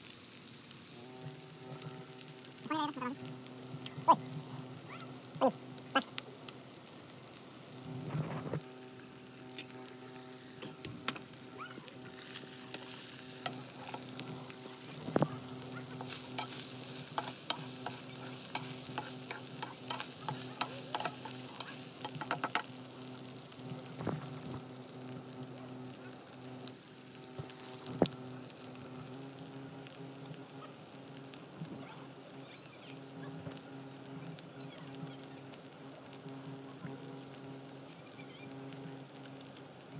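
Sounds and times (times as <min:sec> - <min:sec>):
chicken sizzling in a wok: 0:00.0 - 0:39.9
metal spatula scraping a pan: 0:15.9 - 0:22.6.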